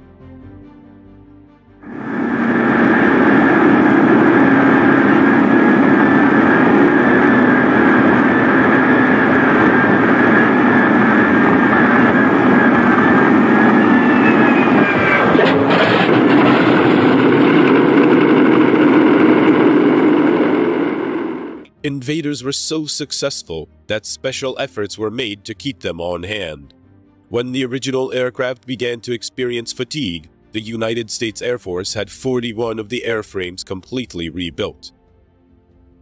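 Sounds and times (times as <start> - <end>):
high engine whine: 1.8 - 21.8
piston aircraft engines droning: 1.8 - 22.8.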